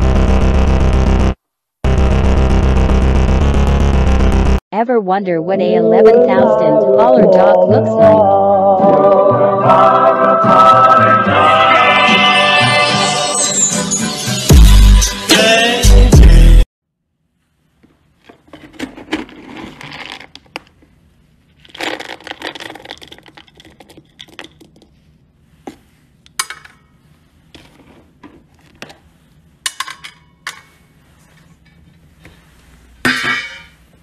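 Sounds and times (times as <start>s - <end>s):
dry kibble rattling and scraping: 18.4s - 20.6s.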